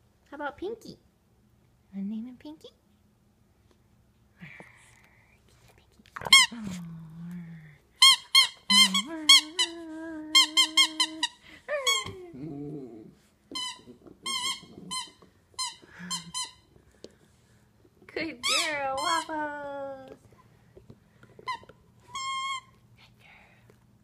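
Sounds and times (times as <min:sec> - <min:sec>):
squeaky dog toys squeaking: 0:08.0 - 0:09.8, 0:13.5 - 0:16.6, 0:18.4 - 0:19.3, 0:21.5 - 0:22.8.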